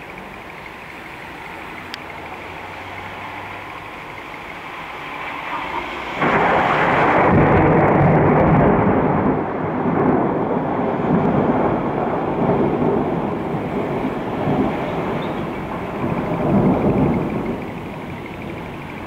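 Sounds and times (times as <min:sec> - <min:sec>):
rolling thunder: 0:05.4 - 0:19.0.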